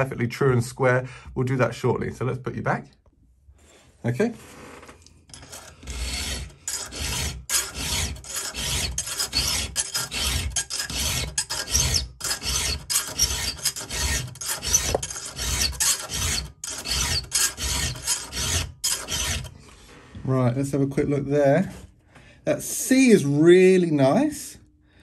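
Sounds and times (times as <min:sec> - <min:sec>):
file rasping on chainsaw tooth: 0:05.3 - 0:19.6.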